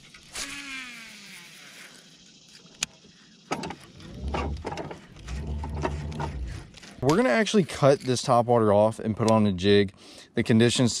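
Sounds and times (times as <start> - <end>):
fishing reel whirring whine: 0.0 - 7.0
reel being cranked: 0.0 - 8.2
low hum: 2.1 - 7.1.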